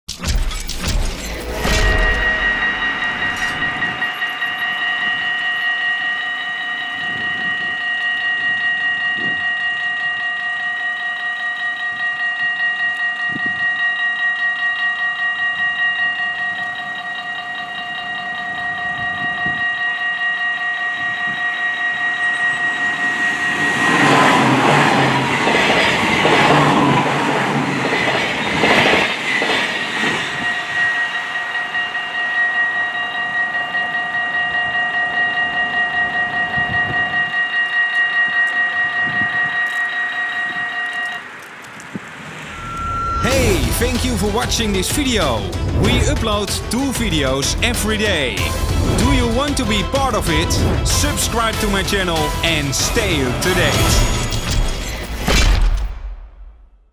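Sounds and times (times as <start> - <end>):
level crossing bell ringing: 1.4 - 26.1, 42.4 - 54.7
train wheels clattering on rails: 23.3 - 31.0.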